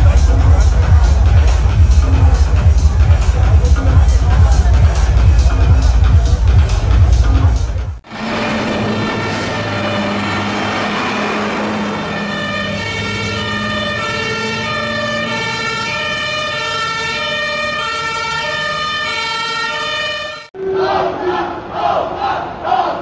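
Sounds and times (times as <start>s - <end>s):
two-tone police siren: 8.1s - 20.5s.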